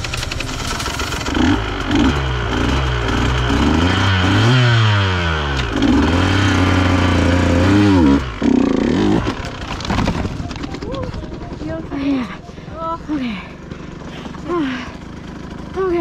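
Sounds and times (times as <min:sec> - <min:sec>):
dirt bike engine revving: 0:00.0 - 0:16.0
bike crashing clatter: 0:09.0 - 0:11.9.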